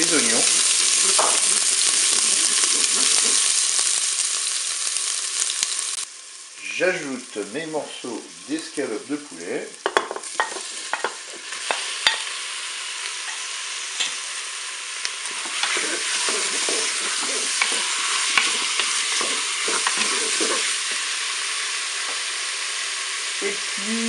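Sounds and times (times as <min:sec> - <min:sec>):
chicken and onion sizzling in oil: 0:00.0 - 0:24.0
wooden spoon stirring: 0:15.3 - 0:21.0.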